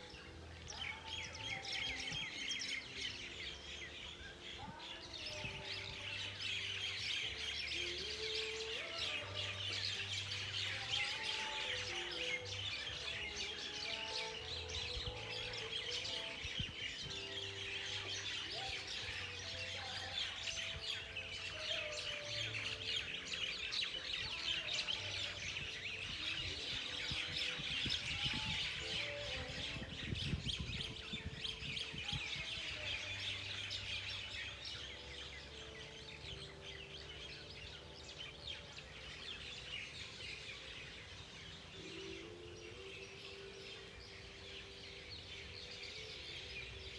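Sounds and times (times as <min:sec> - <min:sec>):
many birds chirping: 0:00.0 - 0:46.9
wind gusts on microphone: 0:25.6 - 0:32.9.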